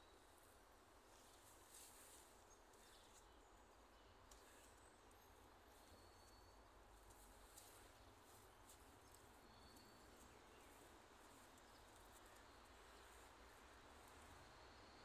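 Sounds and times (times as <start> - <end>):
faint high chirps: 5.7 - 6.8, 9.1 - 13.2.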